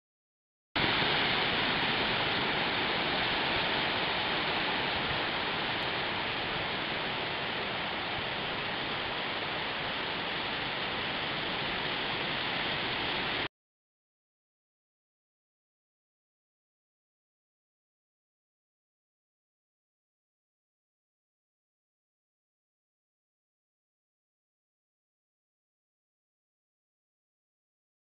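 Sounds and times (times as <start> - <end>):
ocean surf breaking on beach: 0.8 - 13.5.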